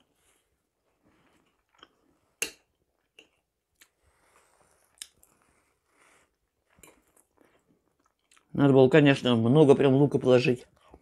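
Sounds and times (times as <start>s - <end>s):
person chewing wetly: 4.7s - 5.6s, 6.4s - 8.5s.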